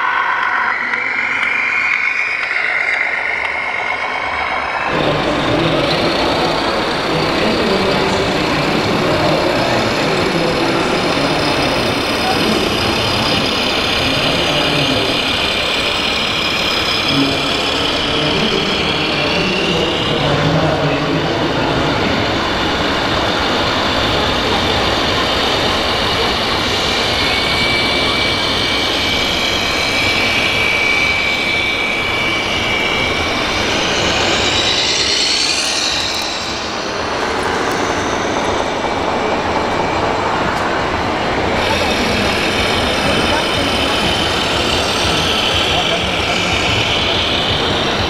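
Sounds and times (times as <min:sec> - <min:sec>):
din of busy hall: 0:00.0 - 0:48.0
high whine of model truck: 0:00.0 - 0:48.0.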